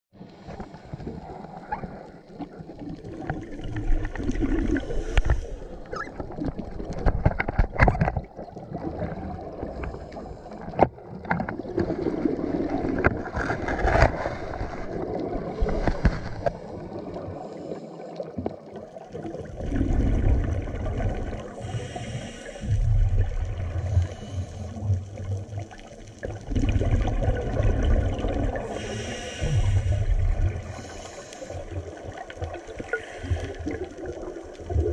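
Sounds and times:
gurgle of exhaled bubbles: 0.4s - 34.9s
regulator inhale hiss: 4.8s - 5.9s, 9.8s - 10.7s, 17.4s - 18.3s, 21.5s - 23.1s, 23.8s - 25.0s, 28.6s - 31.8s, 32.8s - 33.8s.

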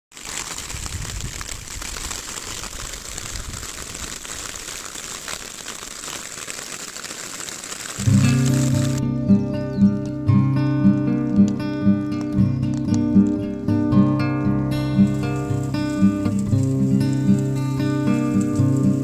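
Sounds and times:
hail pellets crackling on ground: 0.1s - 9.0s, 10.9s - 19.0s.

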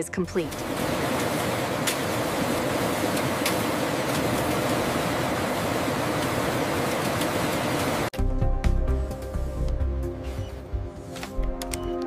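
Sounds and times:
printing press whirring: 0.6s - 8.1s.

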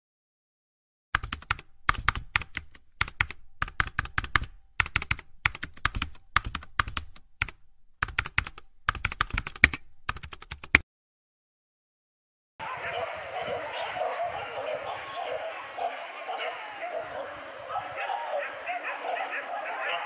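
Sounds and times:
keyboard typing: 1.2s - 10.8s.

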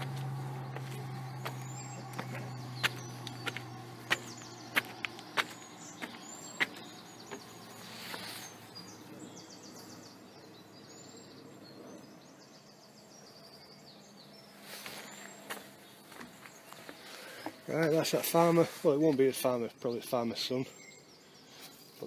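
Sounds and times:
sharp knocks: 0.0s - 8.2s
birds chirping and trilling: 0.0s - 22.0s.

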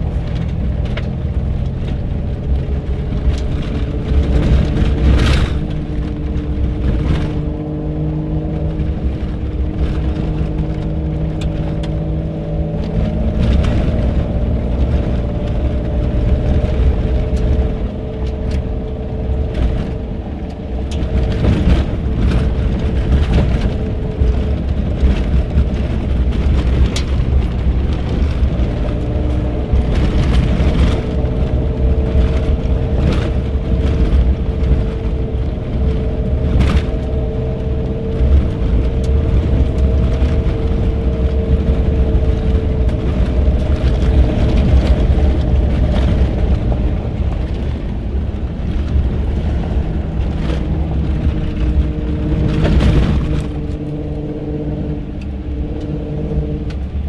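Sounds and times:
knocks and rattles over bumps: 0.0s - 57.0s
truck engine and tyres rumbling: 0.0s - 57.0s.

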